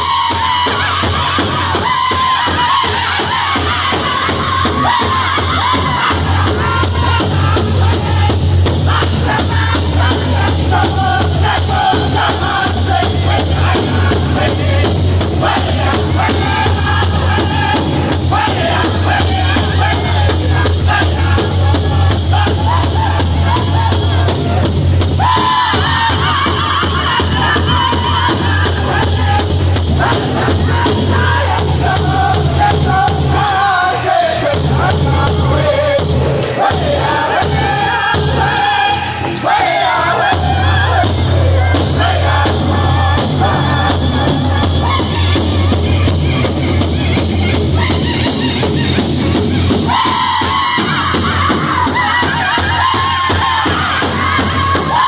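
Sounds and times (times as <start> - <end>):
group singing loudly together: 0.0 - 55.0.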